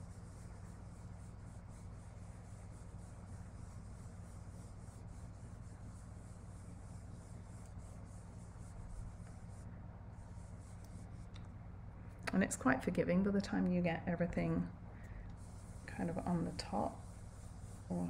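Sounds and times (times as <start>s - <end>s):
brush bristles on paper: 0.0s - 11.5s, 15.2s - 18.0s
steady low hum: 0.0s - 18.0s.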